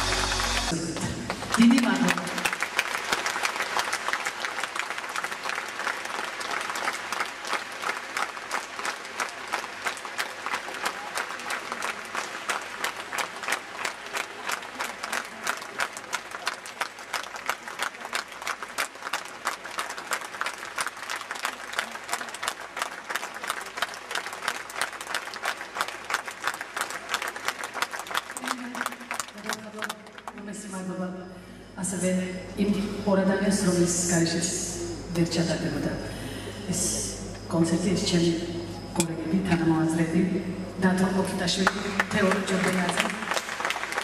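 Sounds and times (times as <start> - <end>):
audience clapping in unison: 0.0 - 30.4, 41.5 - 44.0.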